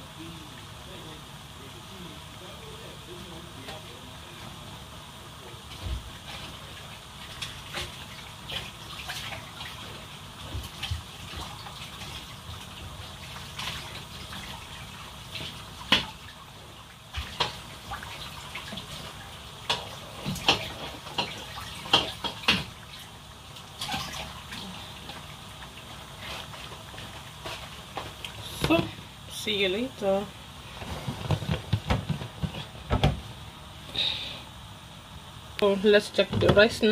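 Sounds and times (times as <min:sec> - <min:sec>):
kitchen tap running: 0:05.7 - 0:30.3.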